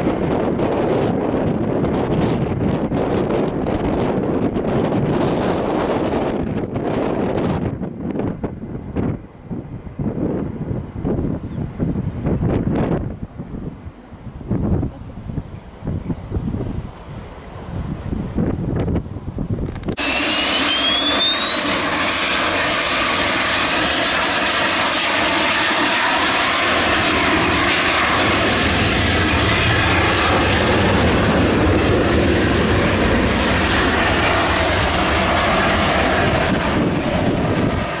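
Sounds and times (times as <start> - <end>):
jet engines at takeoff: 0.0 - 38.0
high engine whine: 16.7 - 38.0.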